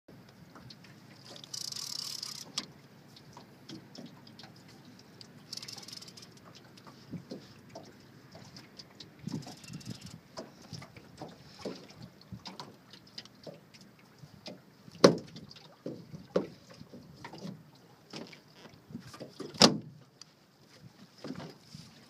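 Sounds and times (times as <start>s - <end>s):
knocks on aluminum boat: 15.0s - 16.5s.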